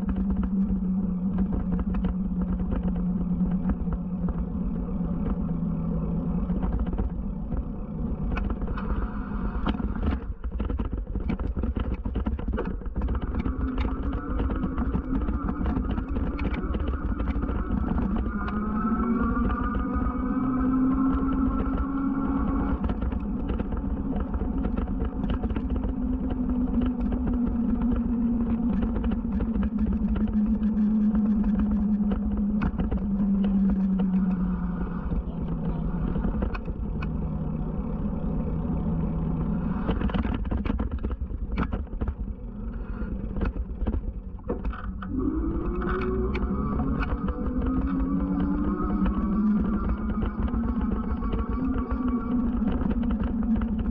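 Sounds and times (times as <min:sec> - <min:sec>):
electric bike motor whining: 0:00.0 - 0:53.9
wind rumble on microphone: 0:00.0 - 0:53.9
sharp ticks and knocks: 0:08.3 - 0:34.5.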